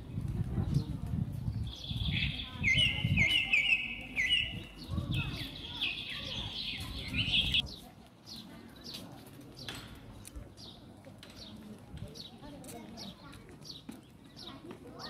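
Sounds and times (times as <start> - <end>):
birds chirping shrilly: 1.8 - 7.7.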